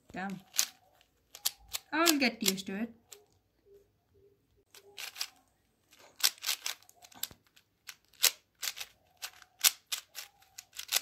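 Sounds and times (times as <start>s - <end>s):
plastic puzzle cube clicking: 0.2s - 3.4s, 4.7s - 11.0s.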